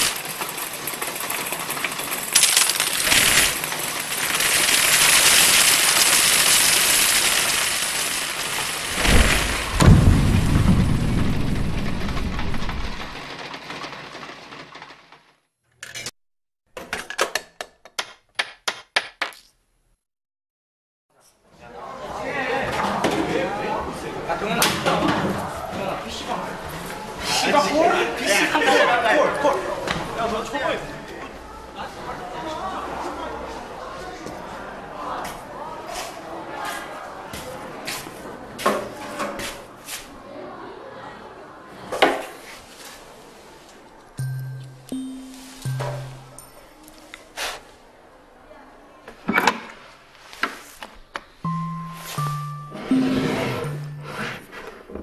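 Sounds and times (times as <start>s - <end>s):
coins dropping: 0.0s - 5.6s.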